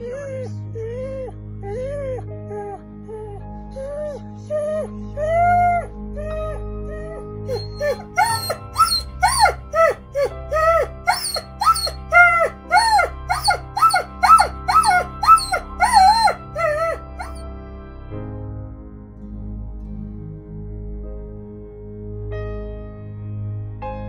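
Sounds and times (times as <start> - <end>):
dog yelping: 0.0 - 6.6, 7.5 - 17.4
slow melody of held notes: 0.0 - 17.5
soft background music: 0.0 - 24.0
steady low chord: 17.1 - 23.9.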